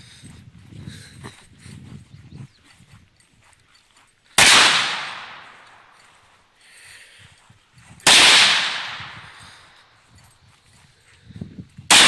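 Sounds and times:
gunshots ringing out: 4.4 - 5.9, 8.0 - 9.6.

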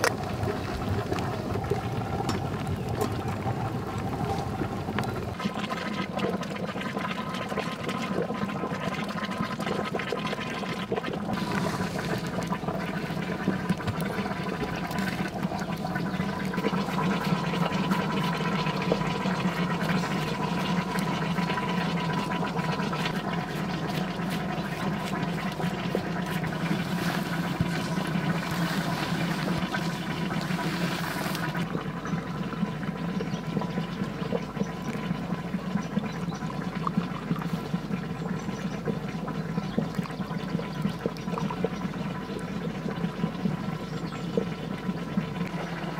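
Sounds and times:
water rushing: 11.3 - 31.8.

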